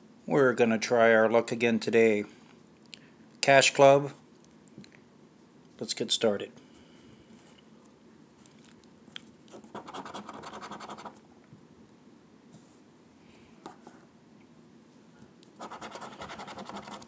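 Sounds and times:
scratch-off ticket being scraped: 9.7 - 11.2, 15.6 - 17.0.

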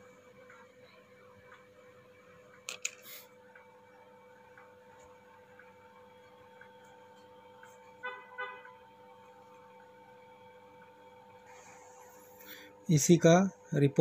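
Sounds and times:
faint electrical hum: 0.0 - 14.0.

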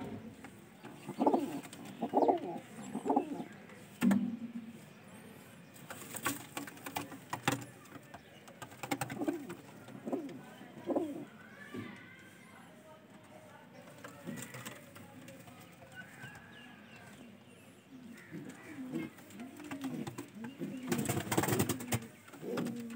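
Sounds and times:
pigeons cooing: 0.8 - 3.6, 8.7 - 11.4, 17.6 - 22.9.

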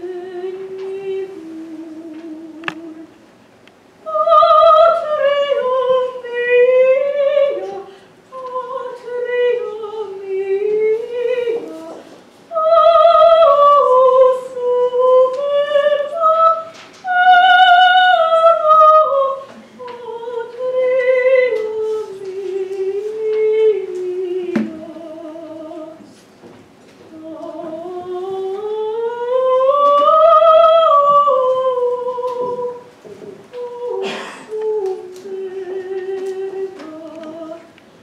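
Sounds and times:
woman singing with vibrato: 0.0 - 3.2, 4.0 - 26.2, 27.0 - 37.8.

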